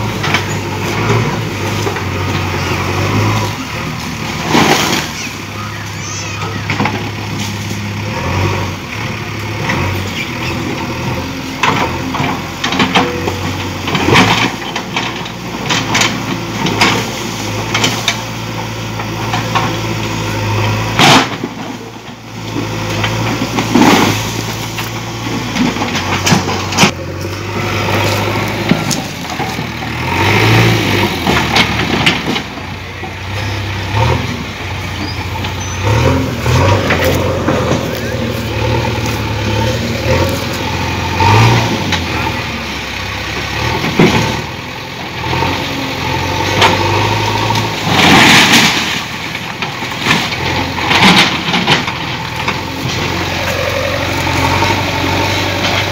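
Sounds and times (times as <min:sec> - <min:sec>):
diesel engine running: 0:00.0 - 0:55.9
brickwork crashing and clattering: 0:47.8 - 0:53.8.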